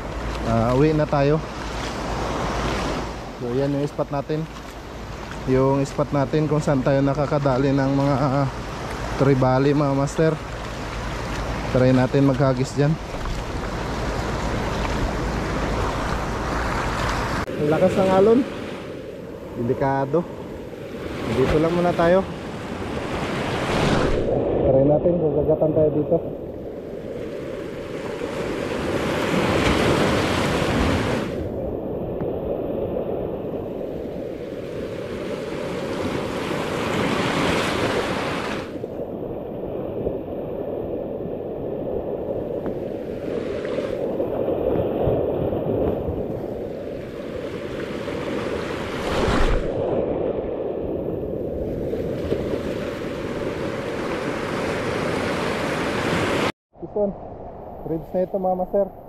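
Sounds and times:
surf breaking over rocks: 20.9s - 57.1s.

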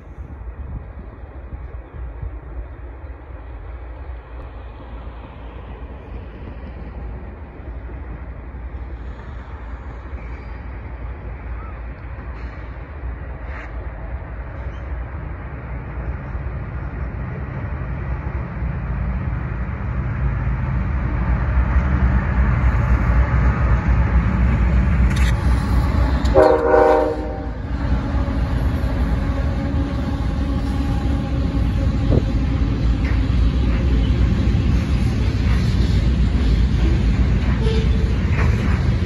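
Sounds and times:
diesel locomotive rumble: 0.0s - 39.0s
train horn blast: 25.8s - 32.4s, 37.5s - 38.2s.

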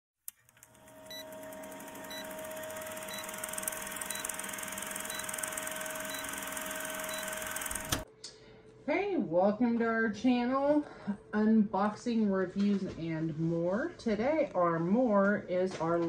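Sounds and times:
film projector whirring: 0.3s - 8.1s.

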